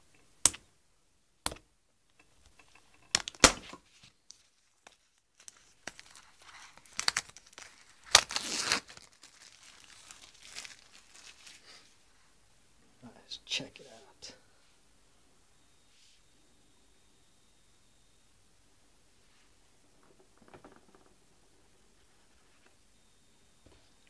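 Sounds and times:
sharp snaps and taps: 0:00.1 - 0:00.7, 0:01.4 - 0:02.3
plastic wrap tearing and crinkling: 0:03.1 - 0:11.9.

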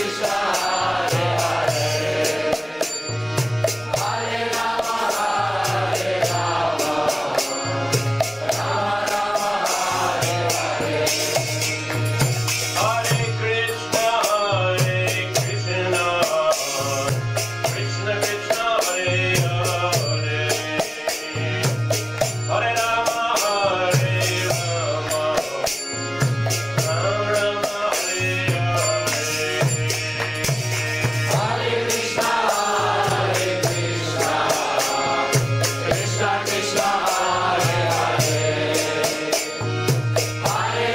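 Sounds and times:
accordion: 0:00.0 - 0:40.9
hand cymbals clashing: 0:00.0 - 0:40.9
group of voices chanting: 0:04.0 - 0:07.6
hand drum beat: 0:29.6 - 0:36.7.

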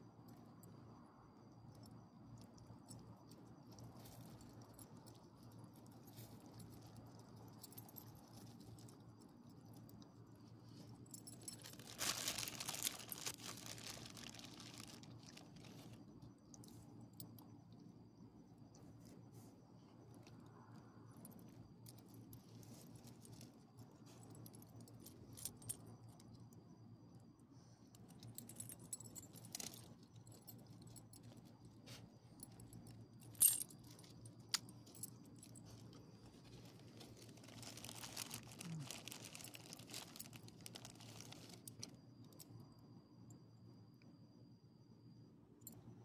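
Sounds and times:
plastic bag rustling: 0:11.3 - 0:15.9, 0:36.4 - 0:41.8
dog collar tags jingling: 0:28.0 - 0:36.0.

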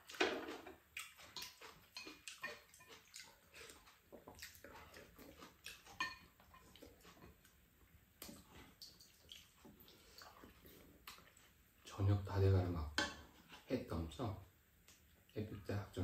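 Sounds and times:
sipping and chewing: 0:00.9 - 0:07.6, 0:08.2 - 0:11.6
utensils tapping ceramic bowls: 0:05.9 - 0:06.7.

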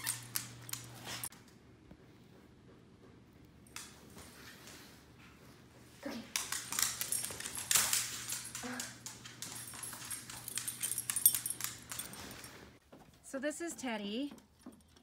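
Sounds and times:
dog claws and toy clicking on floor: 0:00.0 - 0:01.6, 0:03.6 - 0:04.9, 0:06.1 - 0:12.6.

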